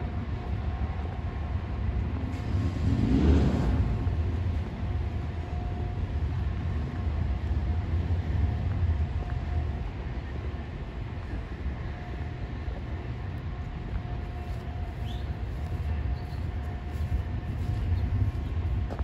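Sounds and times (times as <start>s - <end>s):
road traffic rumble: 0.0s - 19.0s
vehicle passing by: 2.3s - 4.6s.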